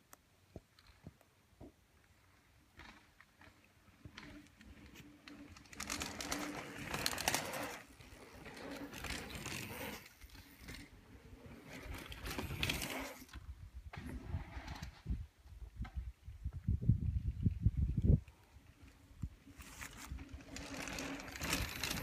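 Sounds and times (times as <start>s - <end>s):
bike tyres crunching over dirt: 2.0s - 13.4s, 18.6s - 22.0s.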